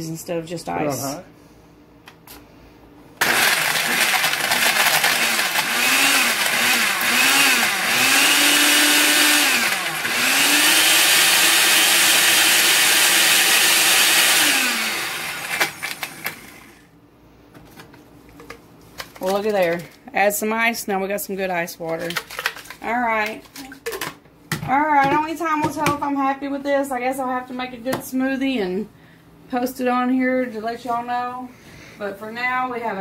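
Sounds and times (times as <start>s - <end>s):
blender crushing ice: 3.2s - 16.8s.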